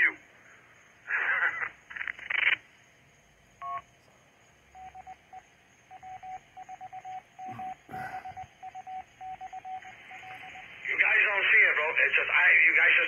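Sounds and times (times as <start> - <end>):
morse code beeps: 3.6 - 3.9, 4.8 - 10.8.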